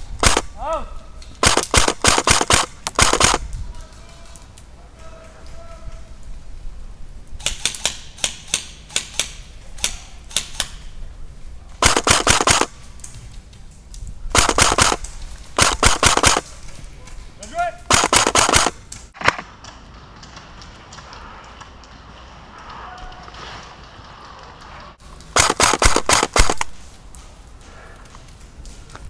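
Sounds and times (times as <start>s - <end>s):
airsoft guns firing: 0.2s - 0.6s, 1.4s - 3.4s, 11.8s - 12.8s, 14.3s - 16.6s, 17.9s - 20.6s, 25.3s - 26.8s.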